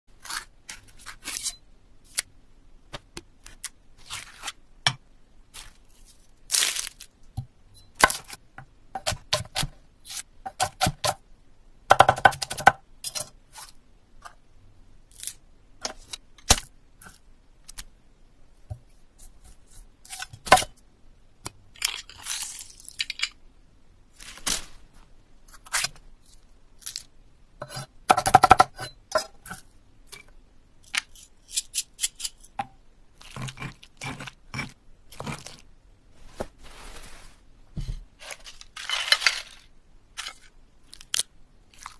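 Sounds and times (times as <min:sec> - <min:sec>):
plastic game pieces tumbling: 0:38.2 - 0:41.2.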